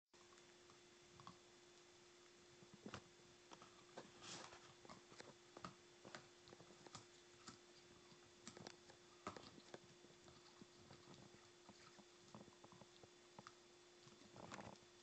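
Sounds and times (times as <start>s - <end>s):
dog chewing toy: 4.7s - 14.8s.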